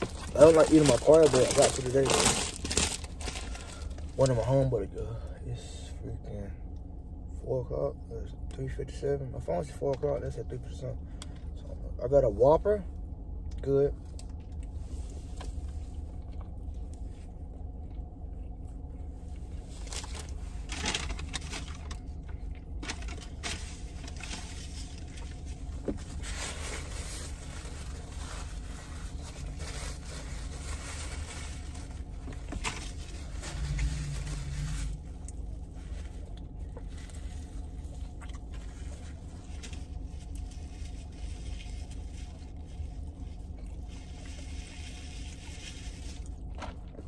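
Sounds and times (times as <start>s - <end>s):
paper wrapper crinkling: 0.0s - 4.4s
low rumble inside a car: 0.0s - 47.0s.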